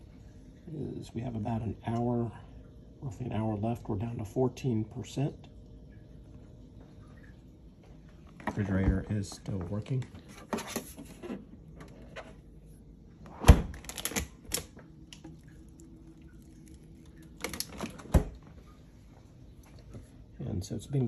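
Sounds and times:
fridge door thump: 13.3s - 14.0s, 17.8s - 18.4s
fridge doors clicking and knocking: 13.3s - 14.7s, 17.4s - 18.4s.

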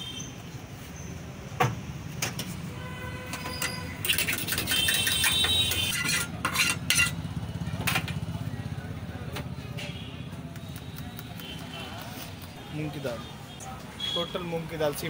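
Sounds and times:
metal tongs clinking on pans: 3.6s - 7.2s.

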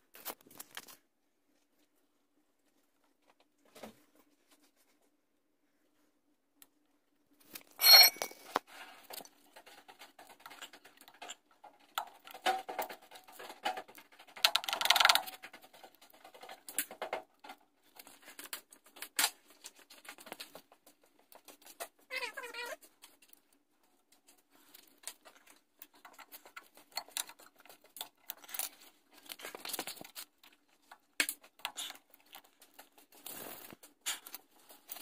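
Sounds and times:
ringing metal clank: 7.8s - 8.4s
metal tools clinking and scraping: 7.8s - 8.6s.

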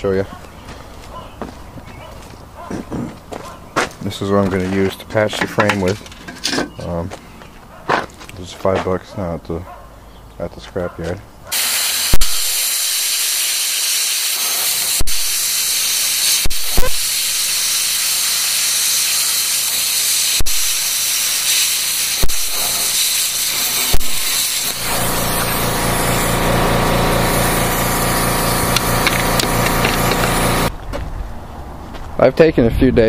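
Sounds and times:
plasma cutter hissing: 11.5s - 30.7s
low buzzing hum: 23.5s - 30.7s.

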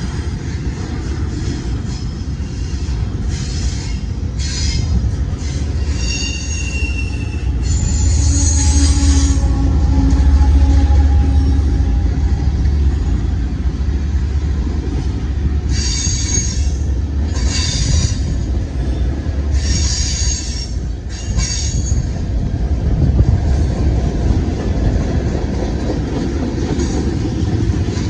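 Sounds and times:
train cars rumbling on rails: 0.0s - 28.0s
locomotive engine hum: 4.0s - 28.0s
high-pitched wheel squeal: 4.4s - 11.9s, 15.7s - 18.4s, 19.5s - 22.1s.

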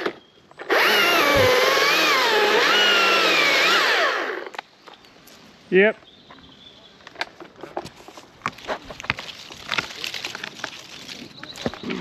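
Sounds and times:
chainsaw revving: 0.6s - 4.6s.

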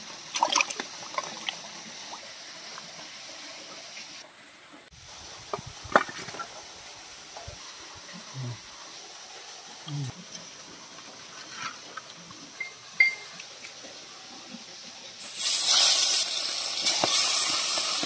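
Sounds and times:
water sloshing in a steel bowl: 0.3s - 1.6s
sharp splashes and knocks: 5.5s - 6.5s.

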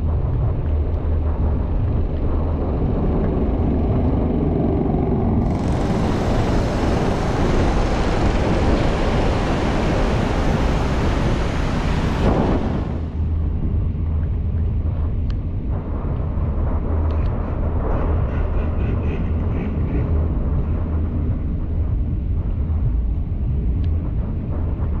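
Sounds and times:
low road rumble: 0.0s - 25.0s
rain and tyre spray hiss: 5.4s - 13.2s.

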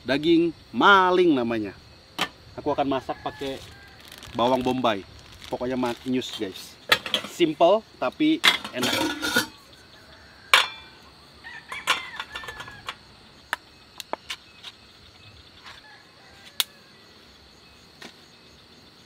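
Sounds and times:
high insect drone: 0.0s - 19.0s
frying pan and utensils clinking: 8.4s - 9.6s, 10.5s - 10.9s.

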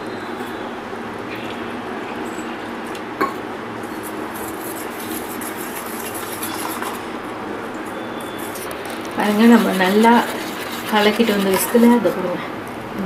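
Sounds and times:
whisk clinking in metal bowl: 9.2s - 12.1s.

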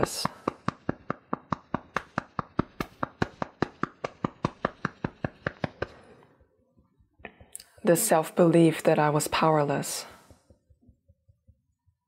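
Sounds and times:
fingertips tapping on body: 0.2s - 6.2s, 6.9s - 7.9s, 10.2s - 12.0s.

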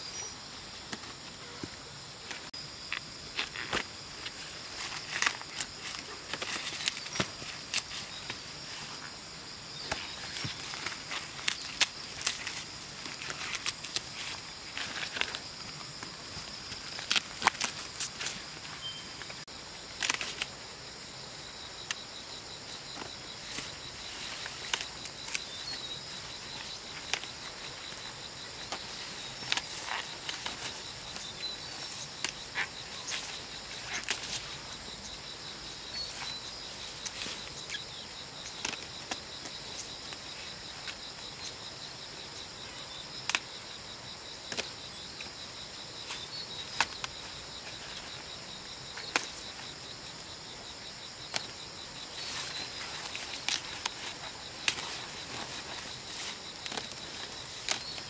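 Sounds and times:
insect chorus shrill drone: 0.0s - 58.0s
sharp snaps and crackles: 9.8s - 20.6s, 23.0s - 34.5s, 43.2s - 43.6s, 48.9s - 50.4s, 52.2s - 58.0s.

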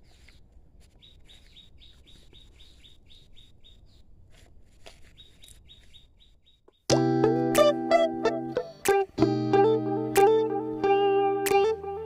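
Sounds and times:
bird chirping: 0.0s - 4.1s, 5.0s - 7.0s.

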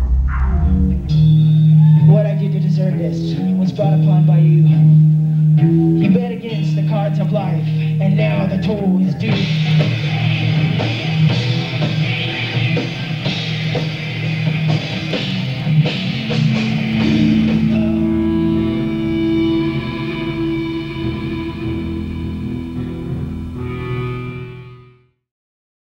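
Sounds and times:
drum kit hits: 0.0s - 2.2s
bass guitar: 0.0s - 25.2s
electric guitars: 0.0s - 25.2s.

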